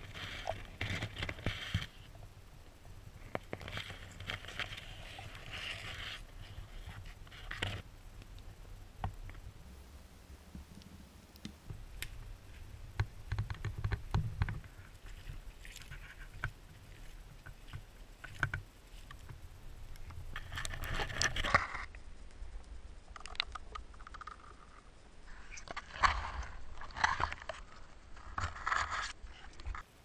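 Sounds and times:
footsteps through soil and grass: 0:11.7 - 0:21.6.

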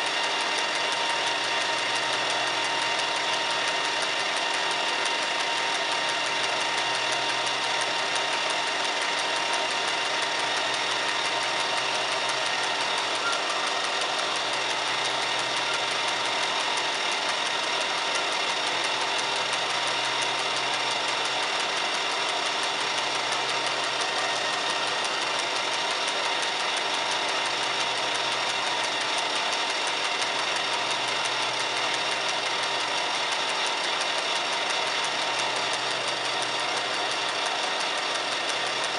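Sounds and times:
metal lathe humming: 0:00.0 - 0:38.9.

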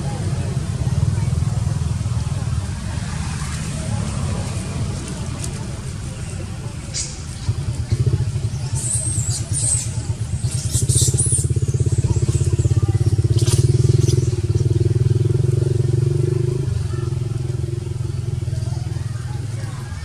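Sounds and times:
motorbike engine running: 0:00.0 - 0:20.0
high squeaky chirps: 0:08.7 - 0:12.6.

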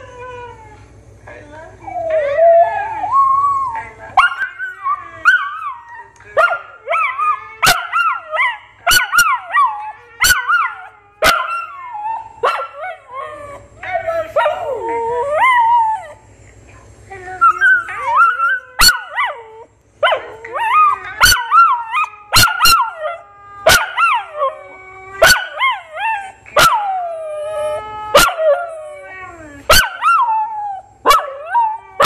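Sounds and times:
dog howling: 0:01.8 - 0:16.2, 0:17.2 - 0:32.0
dog yipping: 0:29.7 - 0:30.3.

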